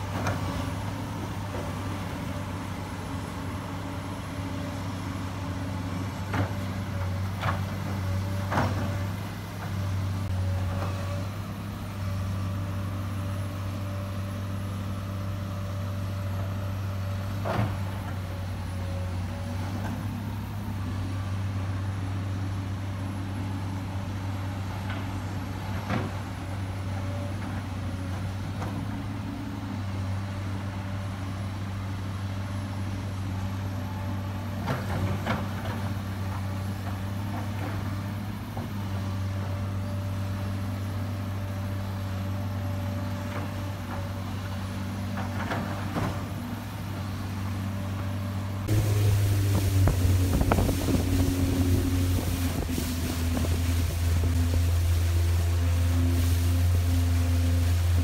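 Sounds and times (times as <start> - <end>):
excavator diesel engine running: 0.0 - 58.0.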